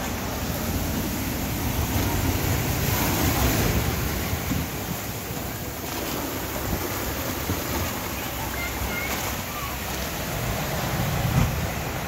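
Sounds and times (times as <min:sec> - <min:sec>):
storm waves breaking on a wall: 0:00.0 - 0:12.0.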